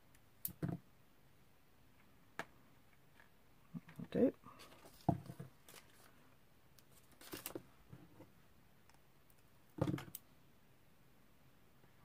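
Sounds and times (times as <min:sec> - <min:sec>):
paper handling taps and rustles: 0:07.1 - 0:07.6.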